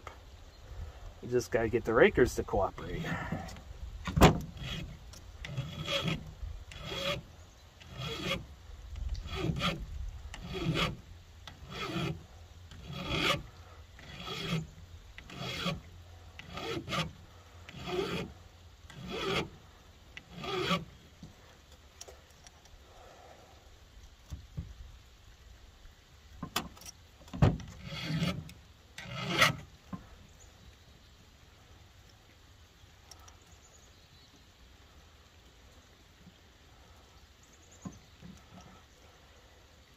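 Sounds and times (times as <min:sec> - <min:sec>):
file rasping on chain: 0:04.5 - 0:07.2, 0:07.8 - 0:08.5, 0:09.2 - 0:19.6, 0:20.2 - 0:20.9, 0:27.8 - 0:29.6.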